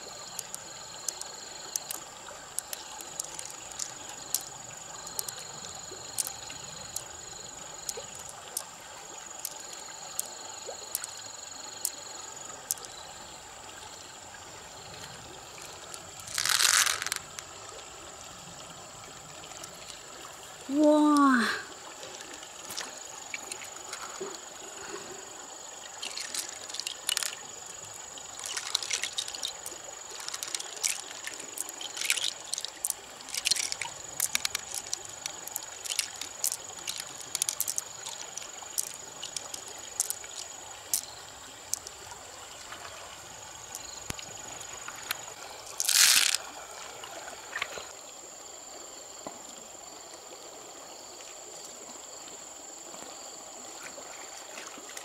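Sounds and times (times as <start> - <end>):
creek water trickling over stones: 0.0 - 55.0
shells clicking: 16.3 - 17.3, 28.4 - 40.3, 45.8 - 46.4.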